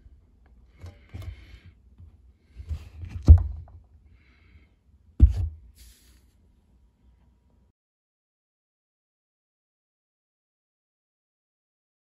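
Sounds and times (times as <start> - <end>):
sharp handling thumps: 5.2 - 5.7
soft thuds: 5.2 - 5.7.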